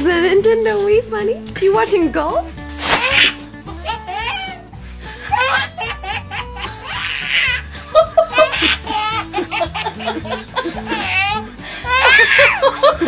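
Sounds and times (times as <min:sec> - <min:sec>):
soft background music: 0:00.0 - 0:13.0
baby laughing: 0:02.8 - 0:13.0.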